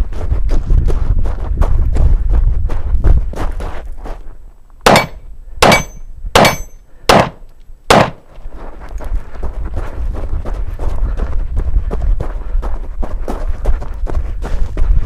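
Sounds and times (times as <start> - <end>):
footsteps crunching on gravel: 0.0 - 4.4, 8.0 - 15.0
wind rumble on microphone: 0.0 - 4.5, 8.5 - 15.0
ringing of steel targets: 4.9 - 8.2
pistol shots: 4.9 - 8.3.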